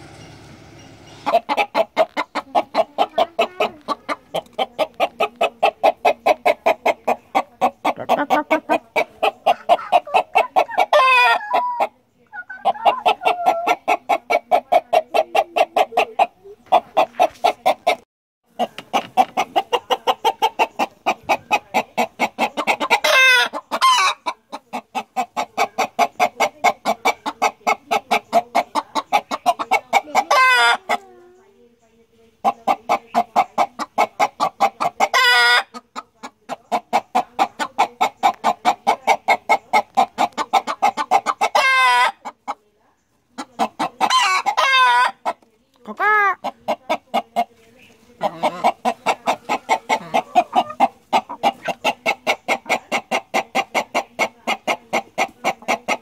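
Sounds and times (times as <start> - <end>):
chickens clucking: 0.0 - 56.0
chicken squawks: 1.2 - 18.0, 32.6 - 42.4, 43.4 - 47.5, 48.2 - 56.0.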